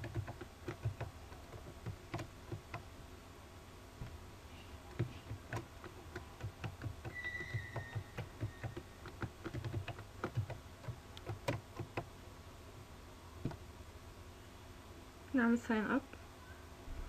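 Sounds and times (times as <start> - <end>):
keyboard typing clicks: 0.0 - 2.9, 4.9 - 12.1.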